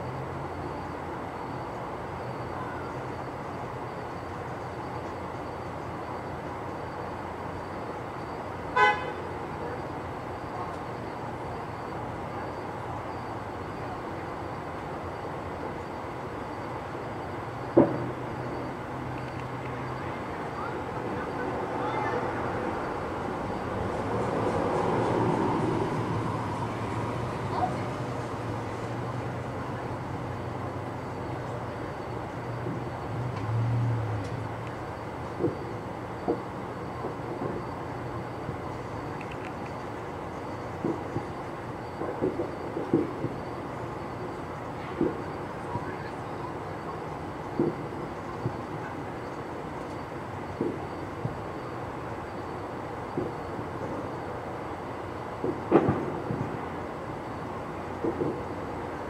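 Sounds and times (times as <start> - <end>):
low mechanical rumble: 0.0 - 55.4
car horn toot: 8.7 - 9.3
faint clicks: 19.1 - 19.8, 39.1 - 39.9.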